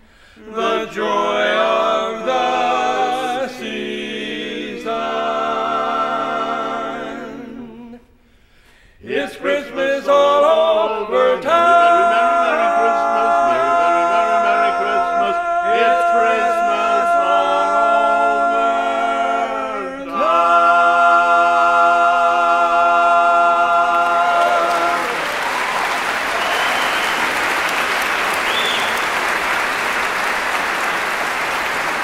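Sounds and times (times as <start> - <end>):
male vocal quartet singing chords: 0.0 - 25.3
audience applause: 23.9 - 32.0.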